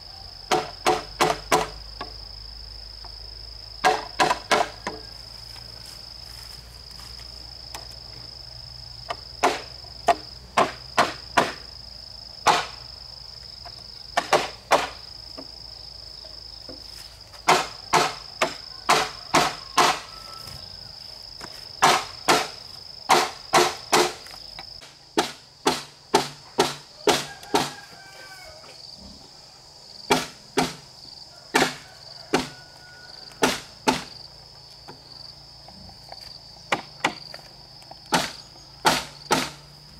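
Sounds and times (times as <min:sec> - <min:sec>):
tool striking wood: 0:00.5 - 0:02.1, 0:03.8 - 0:05.0, 0:09.1 - 0:11.7, 0:12.4 - 0:12.8, 0:14.2 - 0:15.5, 0:17.4 - 0:20.1, 0:21.8 - 0:24.3, 0:25.2 - 0:27.8, 0:30.1 - 0:30.8, 0:31.5 - 0:32.5, 0:33.4 - 0:34.1, 0:36.7 - 0:37.3, 0:38.1 - 0:39.7.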